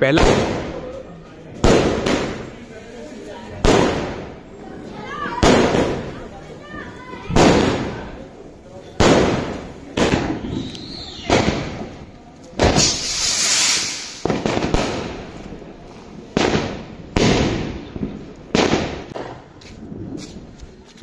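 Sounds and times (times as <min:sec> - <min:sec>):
firework shells bursting: 0:09.0 - 0:15.5
rocket hissing whoosh: 0:12.6 - 0:15.1.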